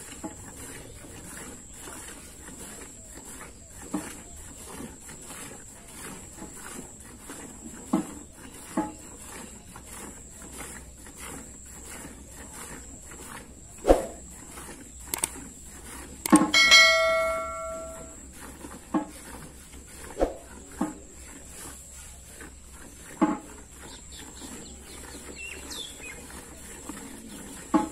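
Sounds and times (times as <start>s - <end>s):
steel pail clanging: 16.4s - 18.2s.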